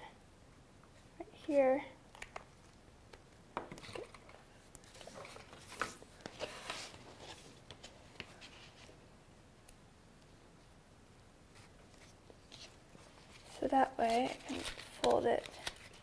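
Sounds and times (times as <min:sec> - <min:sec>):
paper rustling: 0:03.7 - 0:09.0, 0:11.5 - 0:16.0.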